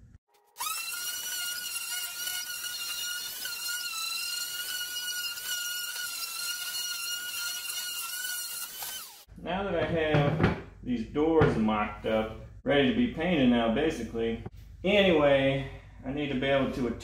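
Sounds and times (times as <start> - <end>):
orbital sander whining: 0.6 - 9.3.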